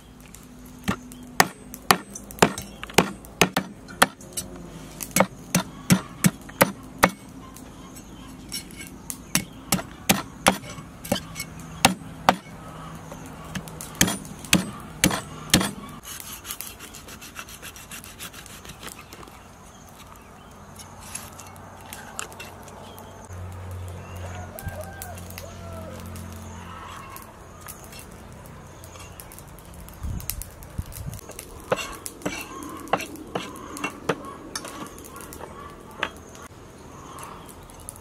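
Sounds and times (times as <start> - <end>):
knife scraping fish scales: 8.0 - 9.0, 15.6 - 19.0.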